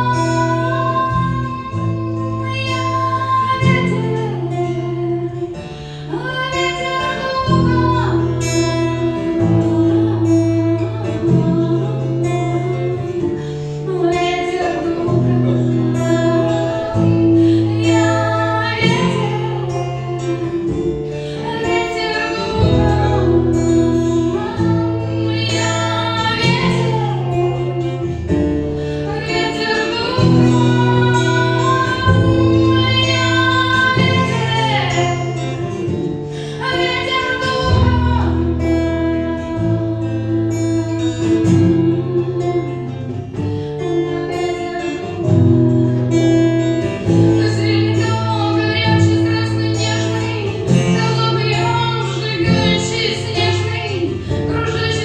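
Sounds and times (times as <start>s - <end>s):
acoustic guitar chords: 0.0s - 55.0s
woman singing worship song: 0.0s - 55.0s.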